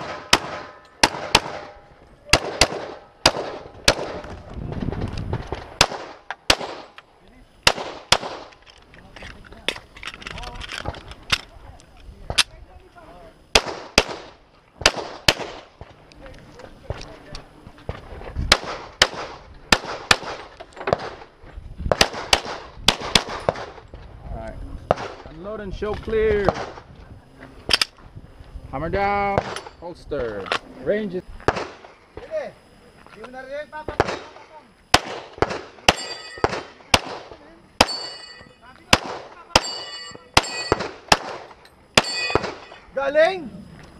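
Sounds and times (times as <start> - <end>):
pistol shots with echo: 0.0 - 4.3, 5.8 - 7.0, 7.6 - 8.5, 13.5 - 15.7, 18.5 - 21.2, 21.9 - 23.8, 31.5 - 32.3, 33.9 - 42.8.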